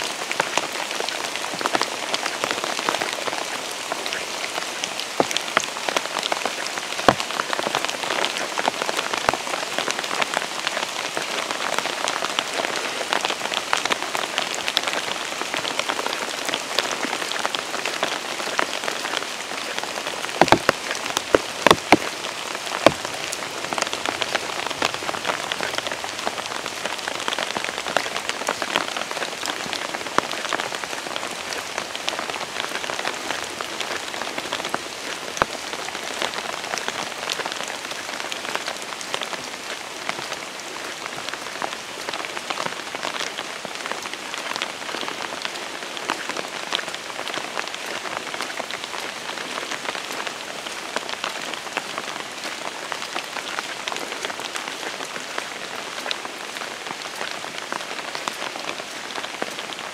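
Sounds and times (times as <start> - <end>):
rain falling: 0.0 - 59.9.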